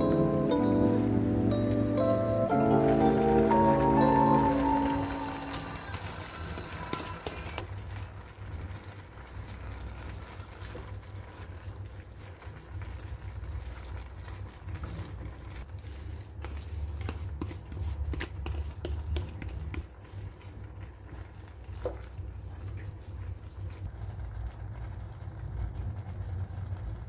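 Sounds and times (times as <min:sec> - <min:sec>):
wooden spatula scraping metal wok: 0:13.7 - 0:22.1.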